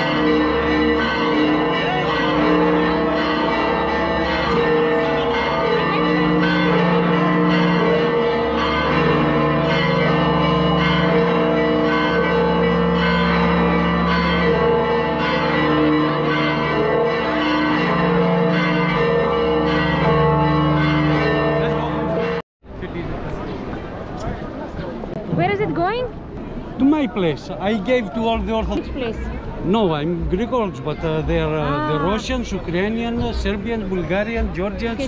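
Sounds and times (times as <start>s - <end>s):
church bells ringing: 0.0s - 22.4s.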